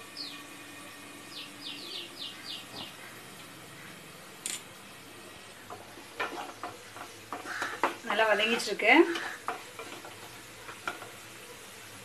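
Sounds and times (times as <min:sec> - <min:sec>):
vegetables sizzling in a pan: 0:00.0 - 0:12.0
small bird chirping: 0:01.3 - 0:04.0.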